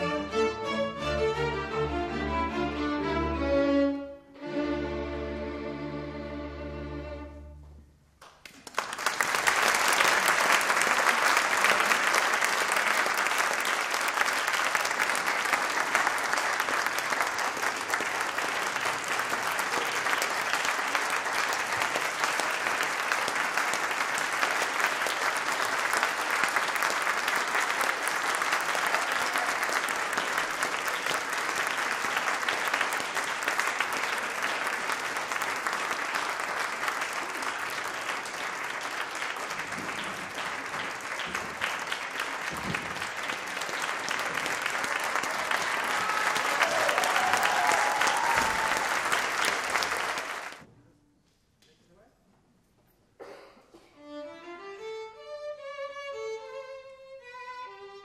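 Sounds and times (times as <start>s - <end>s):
chamber orchestra with violins: 0.0s - 7.9s, 54.0s - 58.0s
audience applause: 8.2s - 50.7s.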